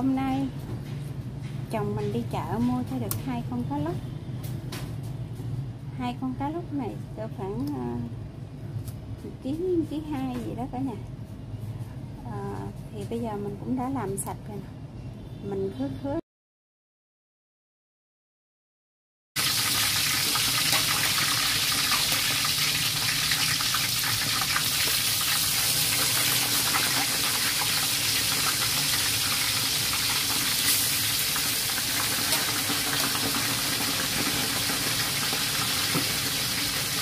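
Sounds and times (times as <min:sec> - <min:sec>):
fish frying in hot oil: 0:19.4 - 0:37.0.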